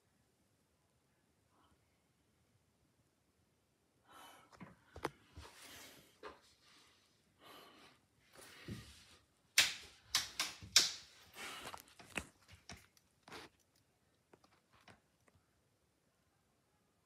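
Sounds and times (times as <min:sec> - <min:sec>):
hands clicking and knocking on light: 0:09.6 - 0:13.0.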